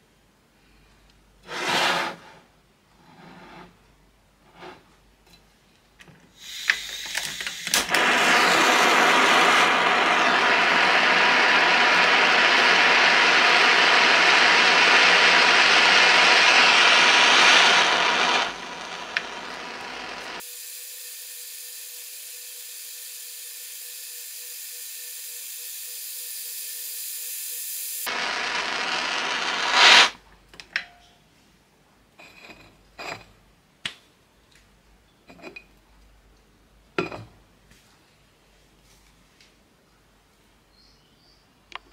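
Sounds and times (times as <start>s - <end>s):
flame hissing: 6.4s - 20.7s, 23.4s - 30.2s.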